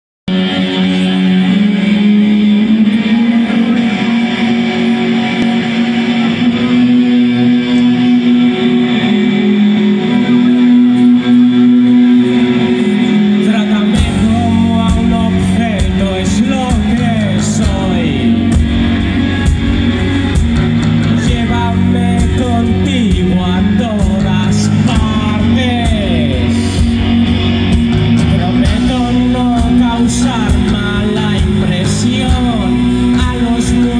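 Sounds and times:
man singing: 0.3s - 19.2s, 21.0s - 27.2s, 28.2s - 33.9s
bass guitar: 0.3s - 33.9s
drums: 0.3s - 33.9s
guitars: 0.3s - 33.9s.

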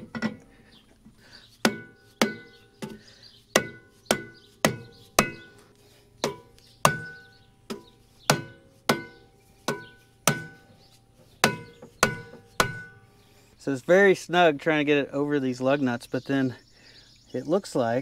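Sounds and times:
rubber mallet tapping metal: 1.6s - 3.0s, 3.6s - 5.6s, 6.2s - 10.8s, 11.4s - 13.0s.

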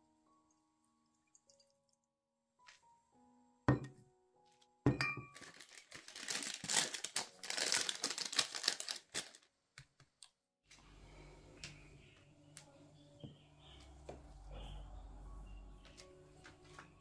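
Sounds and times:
glass carafe clink: 3.7s - 4.0s, 4.9s - 5.4s
glass tapping: 3.7s - 4.0s, 4.9s - 5.3s
paper crinkling: 5.3s - 9.5s.

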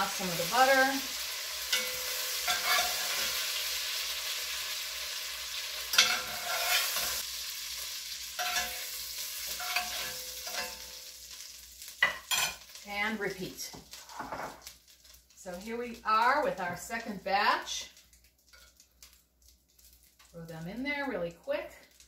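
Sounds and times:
meat sizzling in butter: 0.0s - 22.0s
metal spoon scraping pot: 1.7s - 3.4s, 5.9s - 7.2s, 8.4s - 10.8s.

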